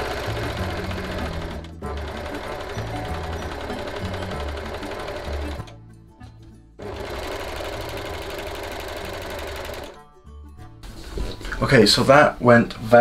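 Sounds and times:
overlocker sewing machine stitching: 0:00.0 - 0:05.8, 0:06.8 - 0:10.0.

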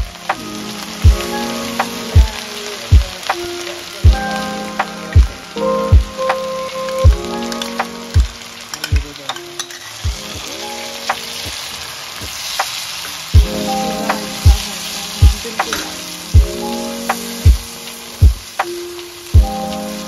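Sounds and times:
music with deep beat: 0:00.0 - 0:09.2, 0:13.4 - 0:20.0
food sizzling in hot oil: 0:00.0 - 0:20.0.

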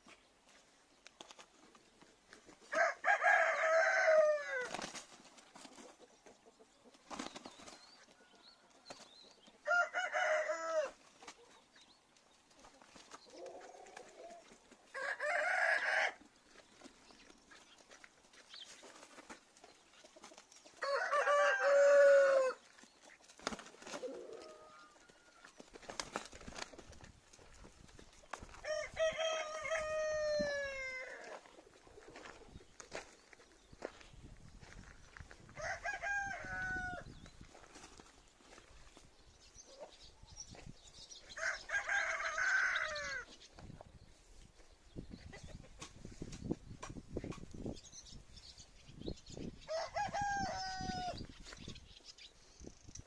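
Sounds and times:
rooster crowing: 0:02.7 - 0:04.7, 0:09.6 - 0:11.0, 0:14.9 - 0:16.2, 0:20.8 - 0:22.6, 0:28.6 - 0:31.4, 0:35.6 - 0:37.1, 0:41.4 - 0:43.2, 0:49.7 - 0:51.2.

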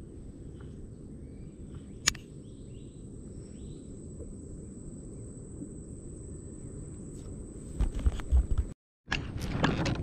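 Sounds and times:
birds chirping: 0:00.0 - 0:07.3
sharp click: 0:02.0 - 0:02.3.

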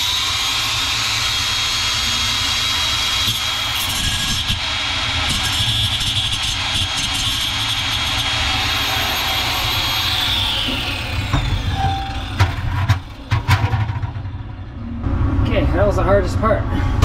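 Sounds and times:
angle grinder grinding metal: 0:00.0 - 0:14.0.

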